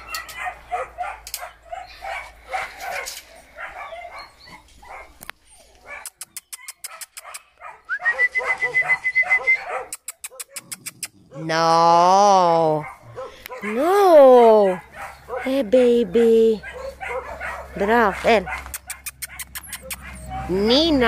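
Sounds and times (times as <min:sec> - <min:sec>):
dogs whining and yipping: 0:00.0 - 0:11.7, 0:12.6 - 0:21.0
sharp clicks: 0:09.9 - 0:11.2, 0:18.5 - 0:20.2.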